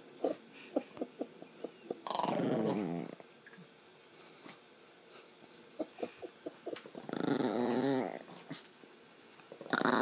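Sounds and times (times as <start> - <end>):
small dog growling: 0.2 - 3.3, 5.8 - 8.7, 9.5 - 10.0.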